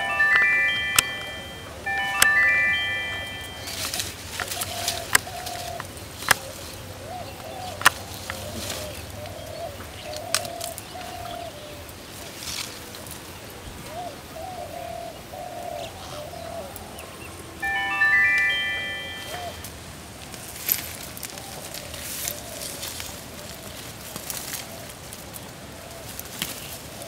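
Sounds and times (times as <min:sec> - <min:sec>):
plants snapping and rustling: 0:03.7 - 0:06.8, 0:07.6 - 0:09.4, 0:10.1 - 0:11.2, 0:20.3 - 0:25.5
dove cooing: 0:03.8 - 0:11.8.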